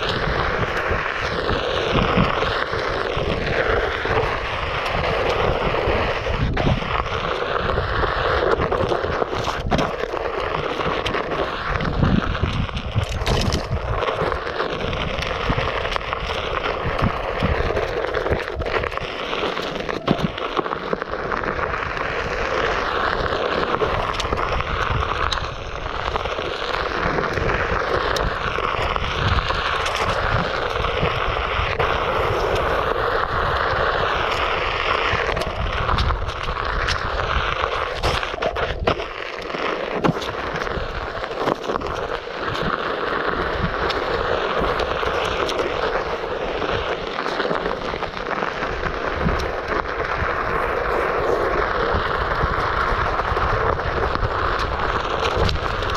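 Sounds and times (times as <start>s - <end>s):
electric board rolling on dirt: 0.0s - 55.9s
wind buffeting the microphone: 0.0s - 55.9s
ticks from the ground: 8.4s - 21.0s.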